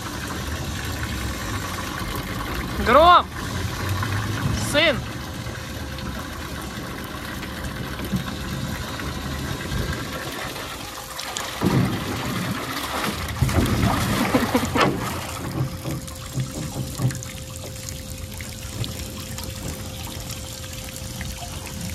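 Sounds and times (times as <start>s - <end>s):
water trickling into metal tub: 0.0s - 21.9s.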